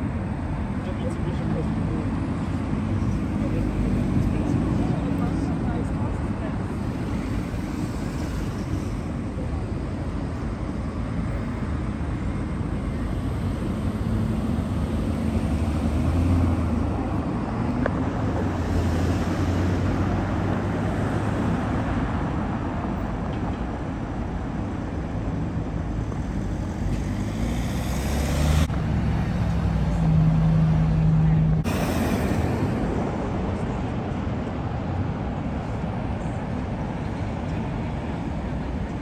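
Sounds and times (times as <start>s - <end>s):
cars passing: 0.0s - 39.0s.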